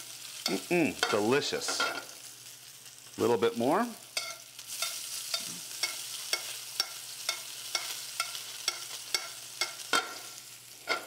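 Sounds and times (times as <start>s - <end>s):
fish sizzling in butter: 0.0s - 11.0s
spoon clinking against pan: 4.2s - 10.2s.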